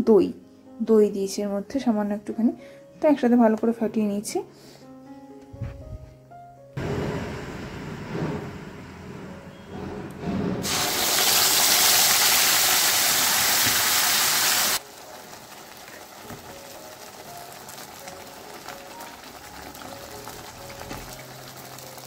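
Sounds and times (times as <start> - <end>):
paste sizzling in hot oil: 10.6 - 22.0.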